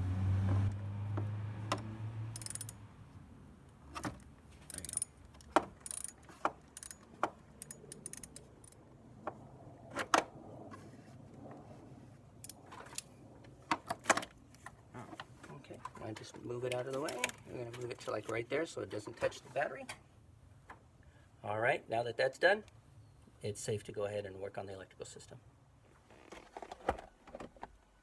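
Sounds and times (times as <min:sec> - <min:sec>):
ratchet wrench clicking: 0:02.4 - 0:02.8, 0:04.7 - 0:05.1, 0:05.8 - 0:07.0, 0:07.6 - 0:08.8.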